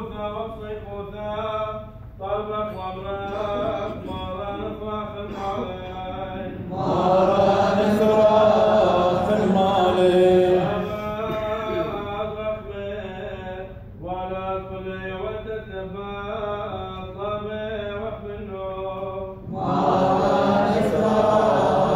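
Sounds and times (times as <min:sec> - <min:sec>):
man chanting: 0:00.0 - 0:21.9
several voices chanting: 0:06.4 - 0:11.1, 0:19.4 - 0:21.9.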